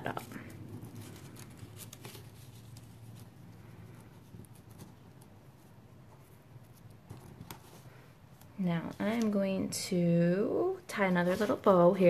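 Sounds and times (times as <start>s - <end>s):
twine rustling through paper: 0.0s - 9.8s, 10.9s - 12.0s.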